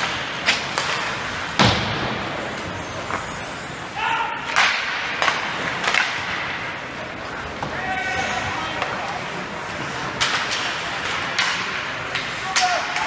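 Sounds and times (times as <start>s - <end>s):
hockey sticks and puck knocking: 0.0s - 3.4s, 4.4s - 6.7s, 10.1s - 13.0s
rink background noise: 0.0s - 13.0s.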